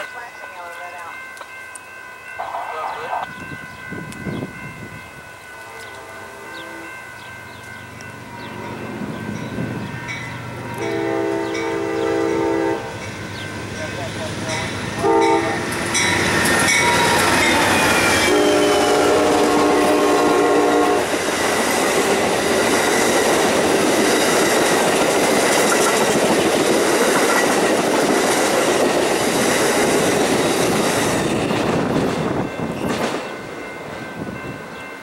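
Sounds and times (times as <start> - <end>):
train cars rumbling and clacking: 3.4 - 35.0
train horn: 5.6 - 7.3, 10.7 - 13.4, 14.5 - 16.2, 16.8 - 21.2.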